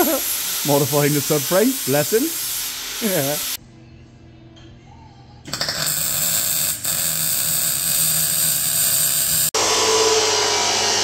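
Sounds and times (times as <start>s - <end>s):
welding arc crackling: 0.0s - 3.6s, 5.5s - 9.5s.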